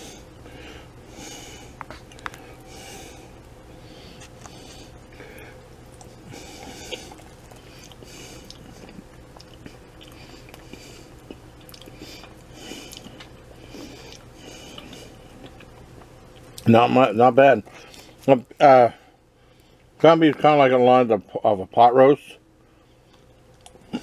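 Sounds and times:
man chewing food: 0.0 - 16.7, 22.9 - 24.0
low steady hum: 0.0 - 24.0.

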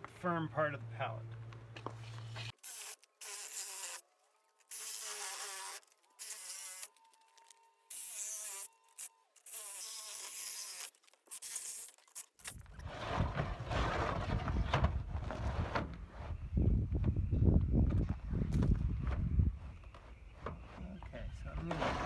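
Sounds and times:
reciprocating saw cutting plastic: 4.6 - 14.2
rough rumbling noise: 12.6 - 19.6.

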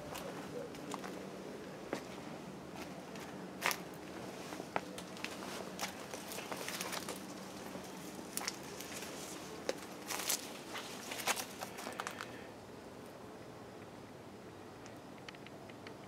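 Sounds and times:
footsteps on garden path: 0.0 - 12.4
leaves brushing: 3.6 - 12.3.

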